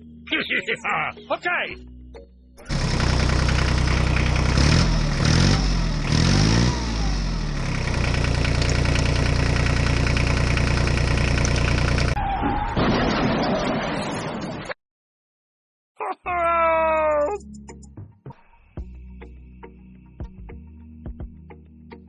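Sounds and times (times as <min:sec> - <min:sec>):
tractor engine revving: 0:02.6 - 0:12.2.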